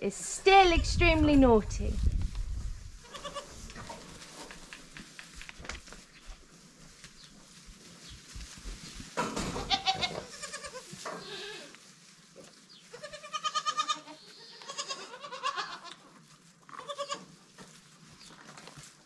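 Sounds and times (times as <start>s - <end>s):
goats bleating: 9.7s - 11.7s, 12.9s - 16.0s, 16.8s - 17.3s.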